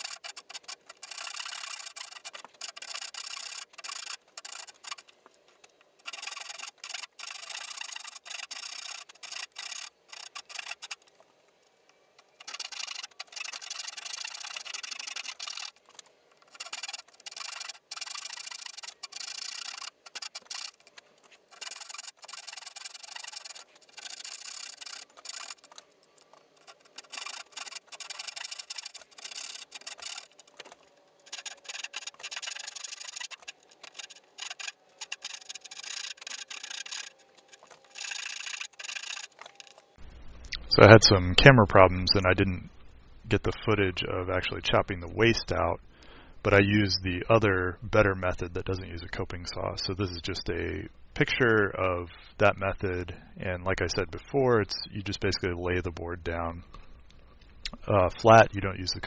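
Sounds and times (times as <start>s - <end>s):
backsaw cutting wood: 0.0s - 5.1s, 6.0s - 11.1s, 12.4s - 39.9s.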